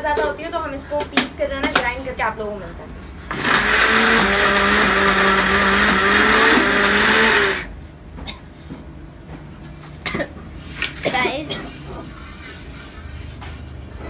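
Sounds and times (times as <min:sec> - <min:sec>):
blender grinding: 0:03.3 - 0:07.7.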